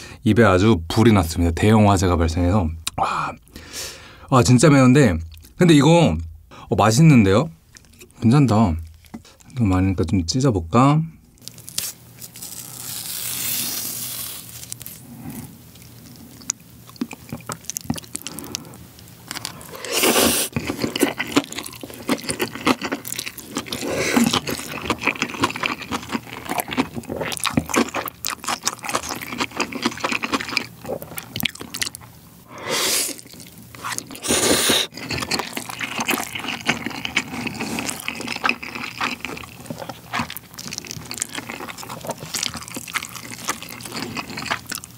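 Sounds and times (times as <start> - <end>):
wet chewing and crunching: 8.8 - 9.6, 11.3 - 32.2, 33.0 - 44.9
cabbage tearing by hand: 11.7 - 15.0
loud noodle slurps: 19.7 - 20.5, 33.8 - 35.0.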